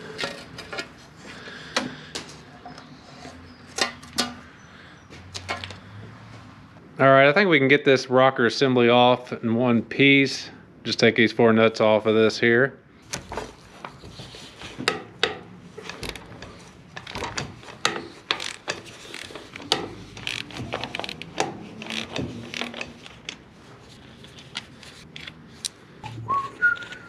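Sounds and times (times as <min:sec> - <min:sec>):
ratchet wrench clicking: 0:18.4 - 0:21.3
whistle-like rising tone: 0:26.0 - 0:27.0.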